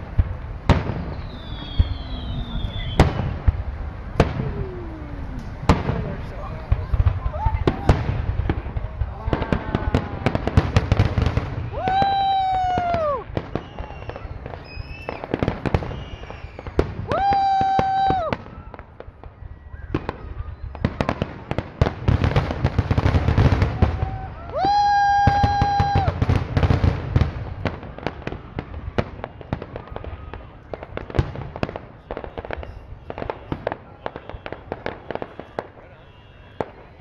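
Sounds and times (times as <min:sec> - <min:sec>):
rumble of explosions: 0:00.0 - 0:32.6
loud steady firework whistle: 0:00.0 - 0:37.0.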